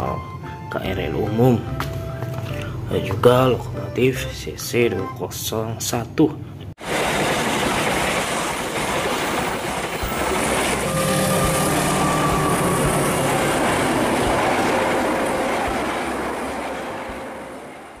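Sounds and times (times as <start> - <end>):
train wheels clacking over rails: 6.8 - 18.0
thin steady squeal: 10.0 - 17.8.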